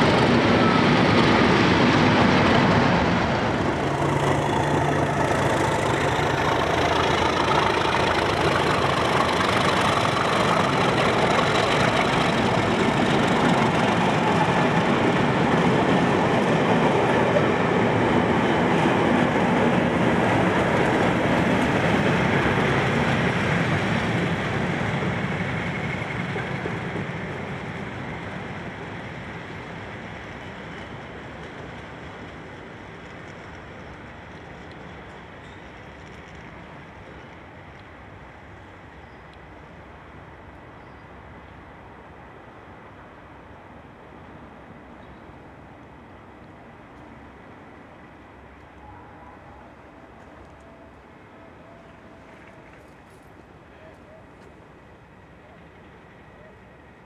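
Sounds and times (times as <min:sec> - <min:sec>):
wheels on rails: 0:00.0 - 0:38.0
diesel locomotive engines: 0:00.0 - 0:57.0.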